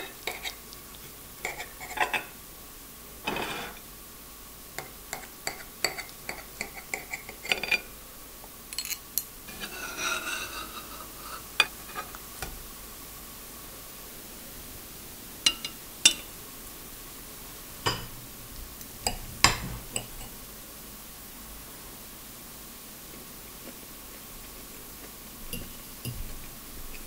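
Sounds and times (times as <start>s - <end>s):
cutlery scraping plate: 1.4s - 2.3s, 3.2s - 3.8s, 5.2s - 7.9s, 8.8s - 12.2s, 15.5s - 16.3s
knife and fork clinking on plate: 15.5s - 16.3s.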